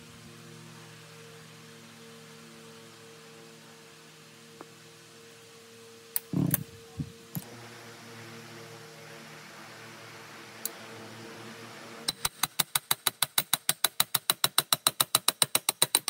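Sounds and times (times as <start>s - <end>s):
steady low hum: 0.0s - 12.4s.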